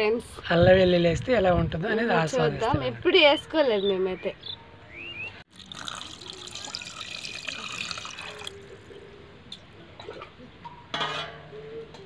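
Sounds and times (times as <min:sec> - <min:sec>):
water pouring into a pot: 0:05.5 - 0:08.6.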